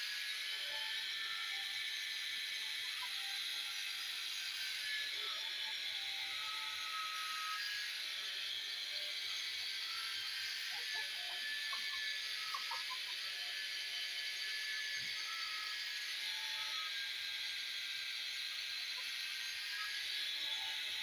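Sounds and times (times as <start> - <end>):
angle grinder polishing with hiss: 0.0 - 21.0.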